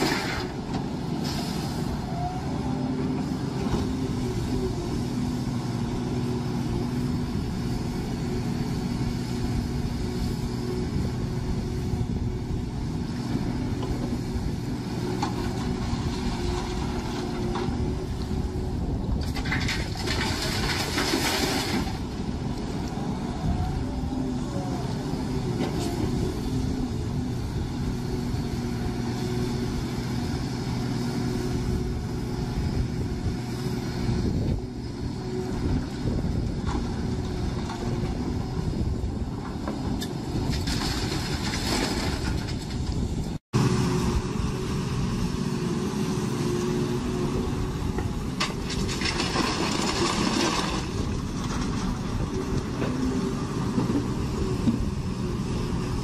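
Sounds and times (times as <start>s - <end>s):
diesel engines running: 0.0s - 56.0s
water and gravel pouring into truck: 19.5s - 22.0s, 48.8s - 51.0s.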